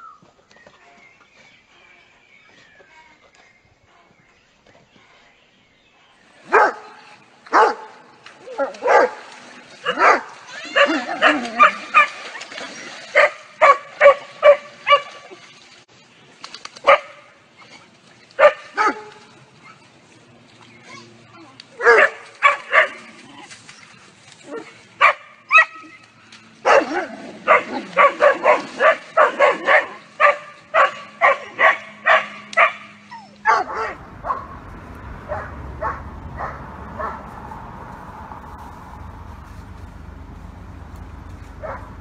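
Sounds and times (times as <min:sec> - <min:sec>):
dogs barking: 0:06.4 - 0:12.3, 0:13.1 - 0:15.2, 0:16.8 - 0:17.3, 0:18.4 - 0:19.8, 0:21.8 - 0:23.2, 0:24.5 - 0:26.0, 0:26.6 - 0:42.0
low steady rumble: 0:33.5 - 0:42.0.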